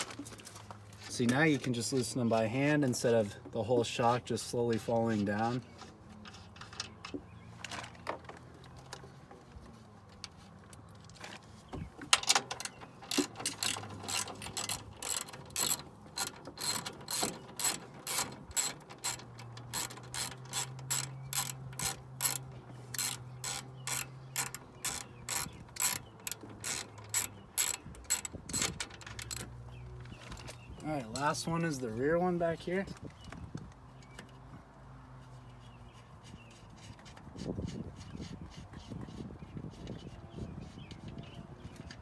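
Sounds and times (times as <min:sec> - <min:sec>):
socket ratchet clicking: 0:12.2 - 0:29.6.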